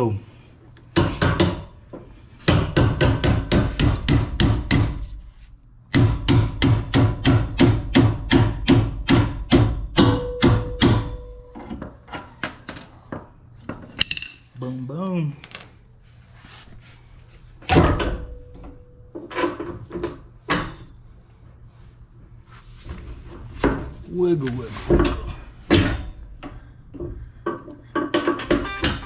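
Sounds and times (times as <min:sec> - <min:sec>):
hammer striking metal: 0:02.5 - 0:05.0, 0:05.9 - 0:11.7
metal knocks and clinks: 0:13.7 - 0:14.4, 0:27.5 - 0:29.0.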